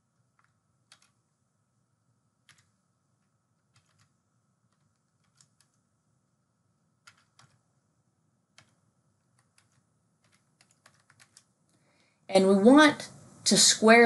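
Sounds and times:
faint keyboard keystrokes: 0.3s - 1.3s, 2.4s - 5.9s, 7.0s - 7.7s, 8.5s - 11.8s.

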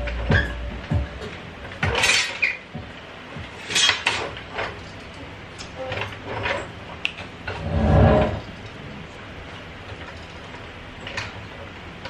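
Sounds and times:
floor jack scraping and clunking: 7.5s - 8.4s.

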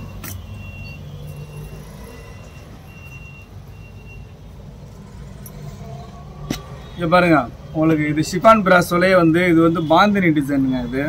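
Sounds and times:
high electronic beeps: 0.0s - 4.4s.

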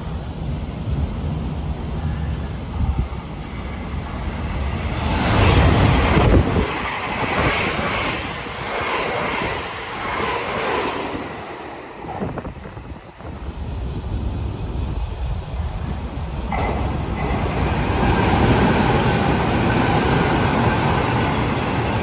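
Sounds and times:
electric train passing: 0.0s - 22.0s
wind on microphone: 1.9s - 22.0s
train wheels clattering: 16.4s - 22.0s.

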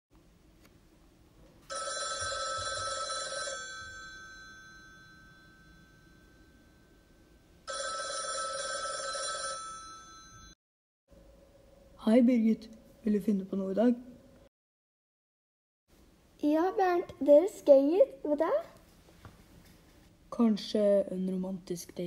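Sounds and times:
telephone ringing: 1.7s - 10.6s.

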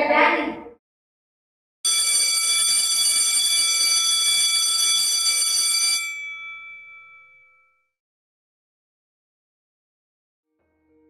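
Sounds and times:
electric school bell ringing: 1.9s - 7.9s.

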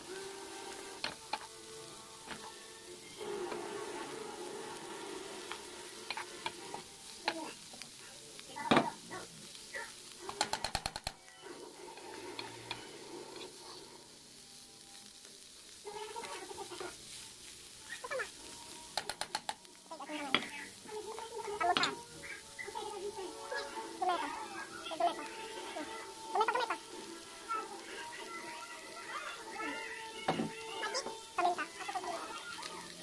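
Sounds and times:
vegetables sizzling in a frying pan: 0.0s - 33.0s
spatula scraping and knocking pan: 4.8s - 7.4s, 10.3s - 11.2s, 21.6s - 22.0s.

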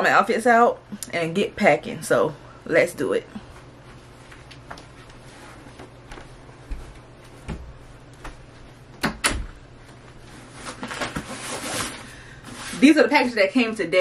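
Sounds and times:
boxes rustling and scraping: 10.2s - 13.1s.

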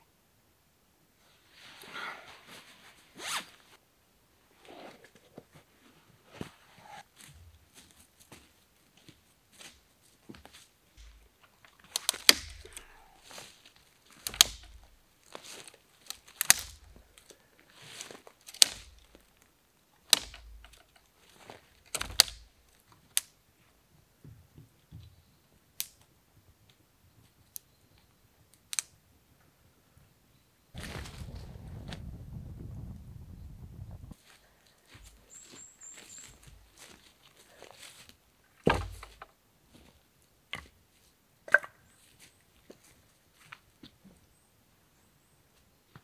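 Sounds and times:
dry sticks snapping: 11.0s - 17.4s, 18.2s - 21.1s, 21.8s - 23.4s, 25.8s - 26.1s, 28.5s - 28.9s
leaf litter rustling underfoot: 11.9s - 19.5s, 30.8s - 32.0s.

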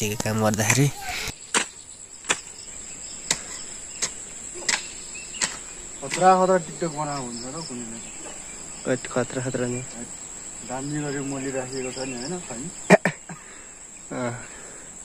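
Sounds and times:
high-pitched insect drone: 0.0s - 15.0s
hoe chopping into wet soil: 0.2s - 2.6s, 3.2s - 6.5s.

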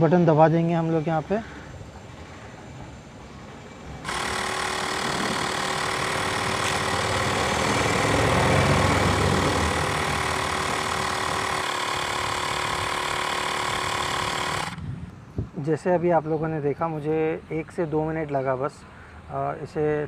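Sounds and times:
electric air compressor humming: 4.0s - 14.8s.

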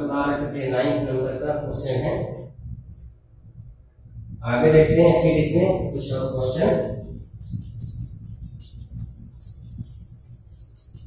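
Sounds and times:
man speaking: 0.0s - 2.4s, 4.4s - 7.0s.

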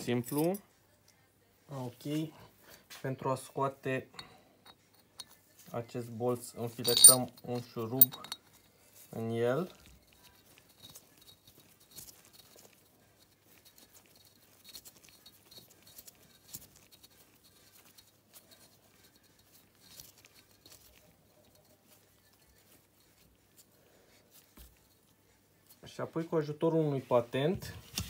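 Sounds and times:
bolt being screwed by hand: 6.8s - 7.2s.

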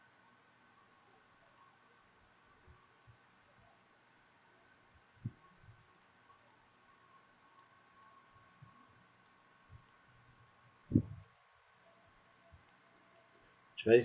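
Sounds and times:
computer mouse clicks: 1.4s - 1.7s, 6.0s - 6.6s, 7.5s - 8.2s, 9.2s - 10.0s, 11.0s - 11.5s, 12.6s - 13.4s.

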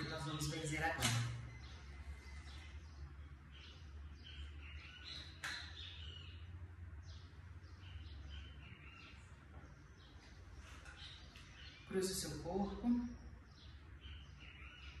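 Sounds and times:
birds chirping: 0.0s - 15.0s
low steady hum: 0.0s - 15.0s
sharp click: 0.9s - 1.4s.

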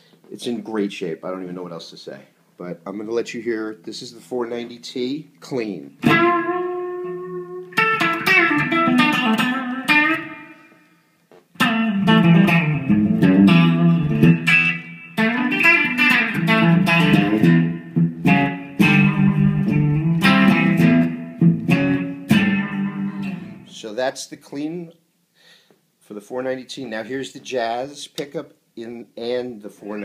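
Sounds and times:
clean electric guitar: 6.0s - 23.8s.

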